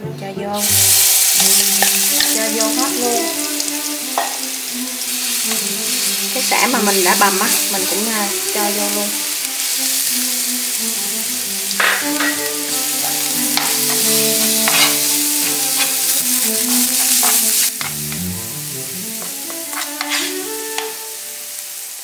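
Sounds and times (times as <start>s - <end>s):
food sizzling in hot oil: 0.6s - 22.0s
spoon scraping a pan: 0.7s - 8.7s, 11.7s - 21.2s.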